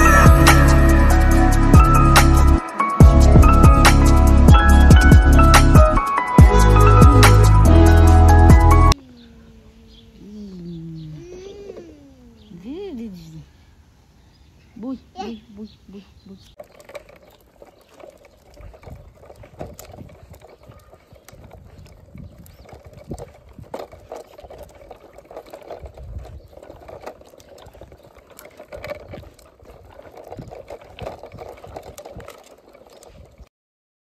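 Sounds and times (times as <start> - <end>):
tricycle wheels crunching on stones: 14.2 - 33.5.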